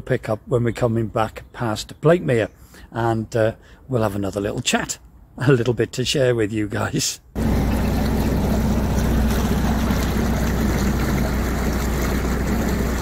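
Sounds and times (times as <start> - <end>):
diesel engine running: 7.4 - 13.0.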